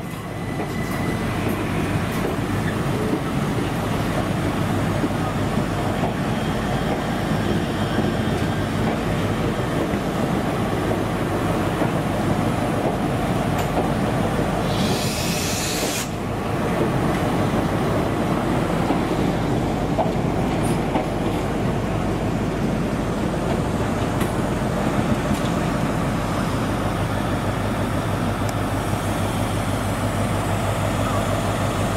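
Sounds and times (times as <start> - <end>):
train wheels and motors rumbling: 0.0 - 31.9
air hiss: 14.6 - 16.2.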